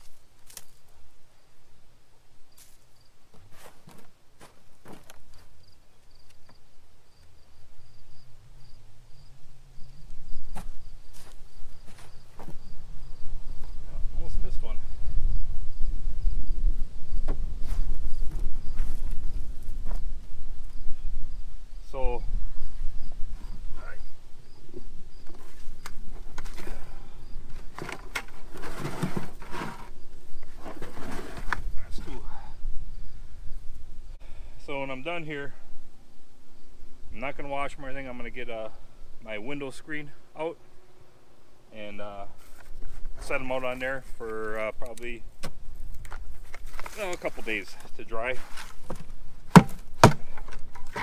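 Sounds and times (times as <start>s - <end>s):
cricket chirping: 0.0s - 3.3s, 3.9s - 28.4s, 31.8s - 34.3s, 35.9s - 37.1s
hands rummaging through soil: 46.0s - 51.0s
sharp knocks: 49.5s - 50.3s.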